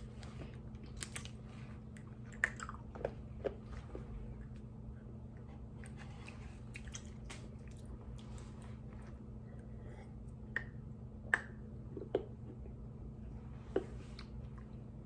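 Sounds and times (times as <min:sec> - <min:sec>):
faint steady hum: 0:00.0 - 0:15.0
lip smacks: 0:00.8 - 0:04.7, 0:05.8 - 0:08.5.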